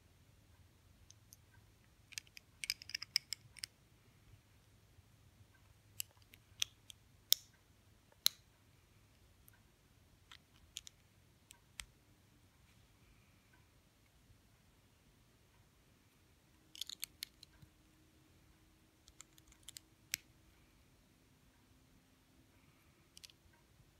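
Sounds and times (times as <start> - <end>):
plastic bricks clicking: 2.1 - 3.7, 16.7 - 17.6.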